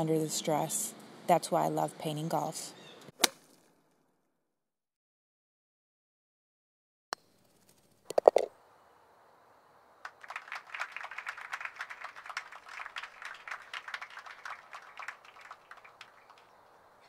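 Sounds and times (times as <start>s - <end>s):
small crowd applauding: 10.0s - 17.0s.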